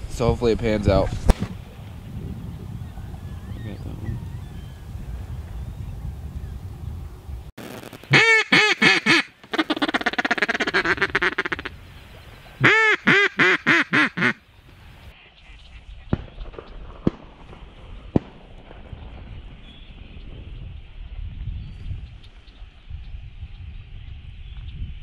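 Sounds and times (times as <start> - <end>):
mallard quacking: 8.1 - 11.8, 12.6 - 14.4.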